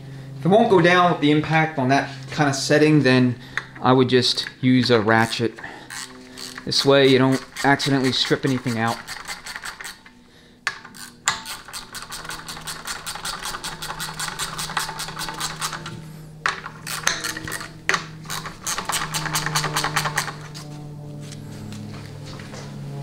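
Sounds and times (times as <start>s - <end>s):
ratchet clicking: 5.2s - 10.1s, 10.7s - 20.5s.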